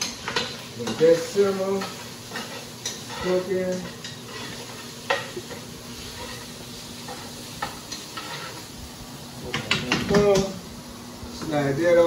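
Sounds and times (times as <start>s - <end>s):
meat sizzling in a skillet: 0.0s - 12.0s
utensil knocking and scraping pan: 7.1s - 8.6s.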